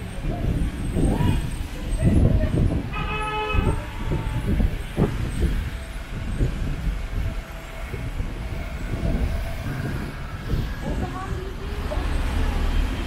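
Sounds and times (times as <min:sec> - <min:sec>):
vehicles rumbling past: 0:00.0 - 0:13.0.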